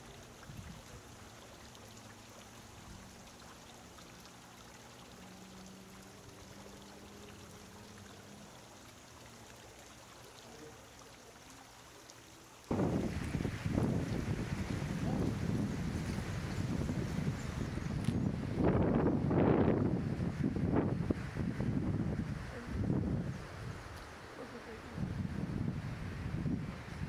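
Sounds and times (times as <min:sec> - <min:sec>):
fountain trickling and splashing: 0:00.0 - 0:27.0
wind buffeting on microphone: 0:12.7 - 0:24.0, 0:24.9 - 0:27.0.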